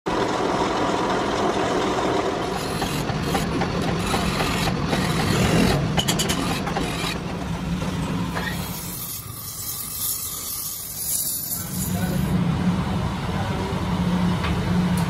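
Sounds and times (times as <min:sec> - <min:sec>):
metal-cutting machinery humming: 0:00.1 - 0:15.0
file scraping spinning steel: 0:01.7 - 0:12.3.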